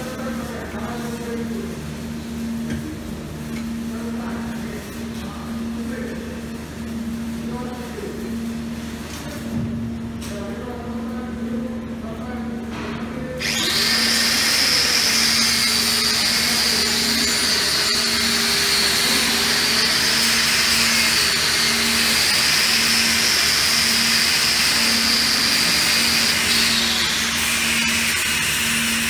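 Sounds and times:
angle grinder wire brushing metal: 0:13.4 - 0:29.0.

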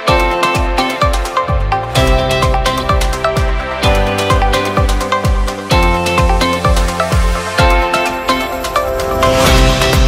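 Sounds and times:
electronic music: 0:00.0 - 0:10.0
kick drum beat: 0:00.1 - 0:07.8
synth melody: 0:00.1 - 0:10.0.

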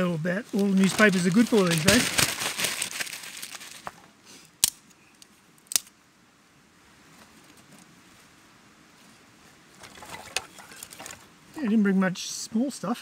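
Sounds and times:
crumpled newspaper rustling: 0:00.5 - 0:04.0.

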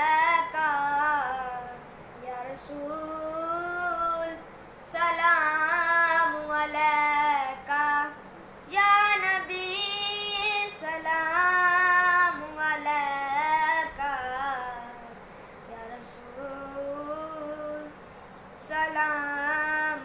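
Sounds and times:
boy singing unaccompanied: 0:00.0 - 0:18.0, 0:18.6 - 0:20.0.

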